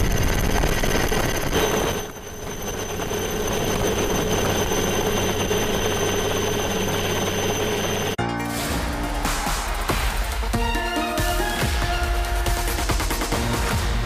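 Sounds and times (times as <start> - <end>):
mechanical drone with high whine: 0.0 - 8.2.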